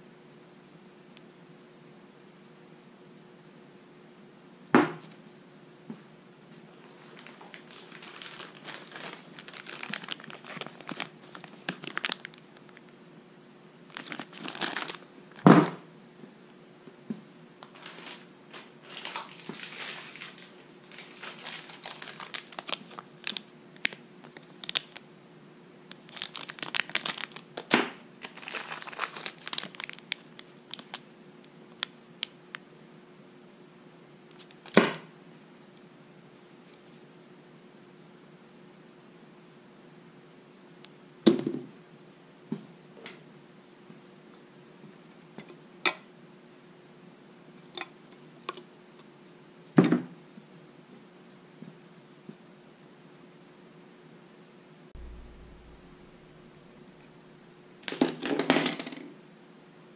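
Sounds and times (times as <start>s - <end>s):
plastic bags crinkling: 6.7s - 12.8s, 13.9s - 15.5s, 17.6s - 25.0s, 25.9s - 31.0s
sharp knock: 55.0s - 56.8s.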